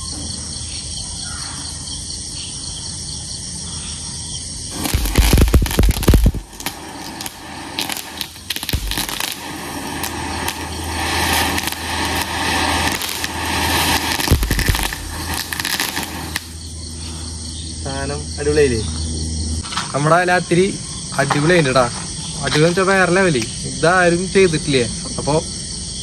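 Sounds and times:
firework stick hissing and crackling: 4.7 - 17.4.

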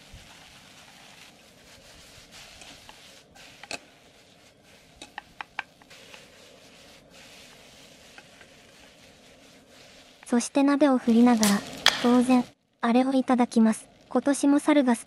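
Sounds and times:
rice sizzling in a wok: 0.0 - 12.5
spatula knocking and scraping pan: 11.7 - 12.2.

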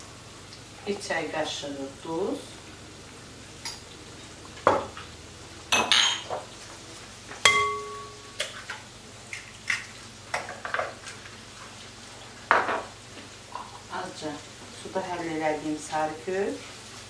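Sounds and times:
ringing clink: 7.5 - 8.2.

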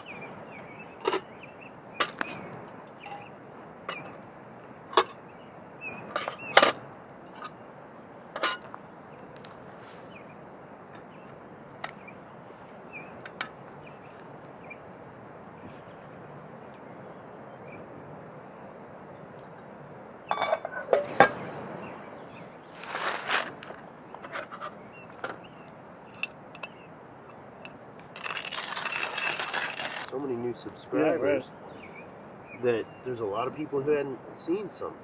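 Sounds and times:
wood fire crackling and popping: 8.6 - 9.7.

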